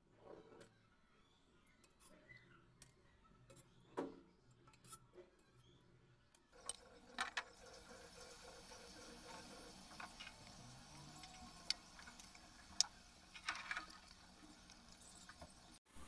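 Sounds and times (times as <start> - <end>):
hot oil sizzling: 6.6 - 15.8.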